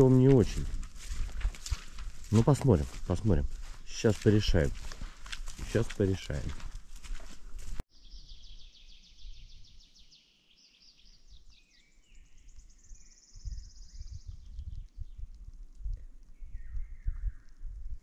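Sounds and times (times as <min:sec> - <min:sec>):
songbirds trilling and chirping: 0:07.9 - 0:15.5.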